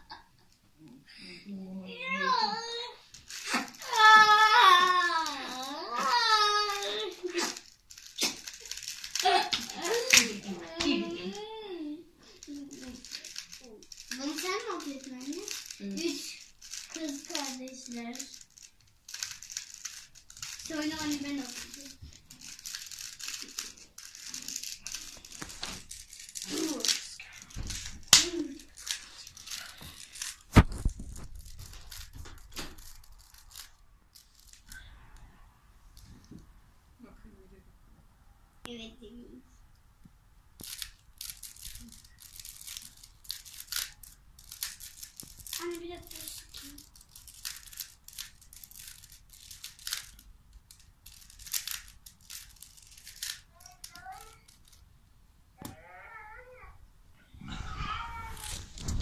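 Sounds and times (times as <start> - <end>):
plastic cube clicking and rattling: 3.1 - 11.1, 12.3 - 34.8, 40.6 - 54.8.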